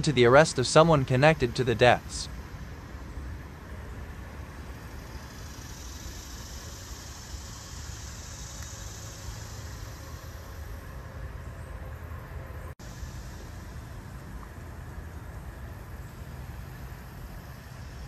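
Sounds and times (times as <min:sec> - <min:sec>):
hiss: 0:04.8 - 0:11.1, 0:12.8 - 0:14.4, 0:16.4 - 0:18.0.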